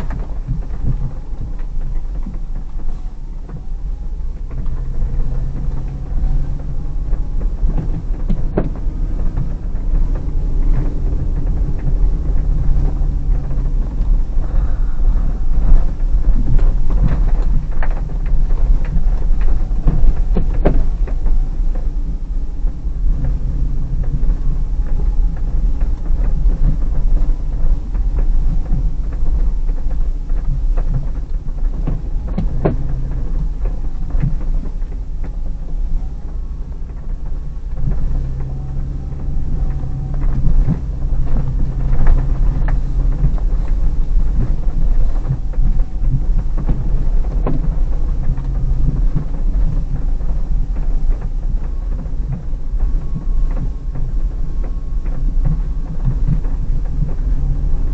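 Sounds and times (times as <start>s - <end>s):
engine and tyre rumble: 0.0s - 57.9s
knocks and rattles: 0.0s - 57.9s.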